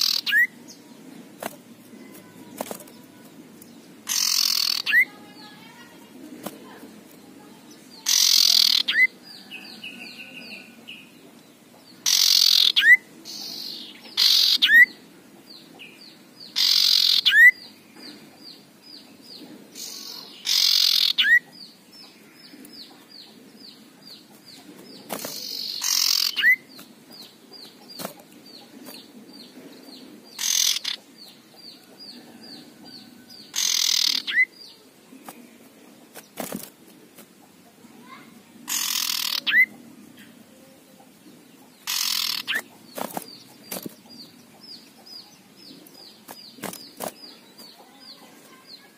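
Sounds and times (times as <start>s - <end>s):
bird harsh rasping call: 0.0s - 0.6s, 4.1s - 5.9s, 8.0s - 9.2s, 12.0s - 14.9s, 16.6s - 17.6s, 19.8s - 21.4s, 25.2s - 26.7s, 30.4s - 31.0s, 33.5s - 34.6s, 38.0s - 39.7s, 41.8s - 42.7s.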